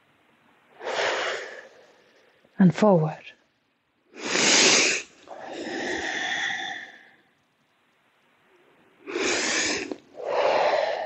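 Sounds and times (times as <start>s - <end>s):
person breathing deeply: 0.7s - 2.4s, 4.2s - 7.3s, 9.0s - 11.0s.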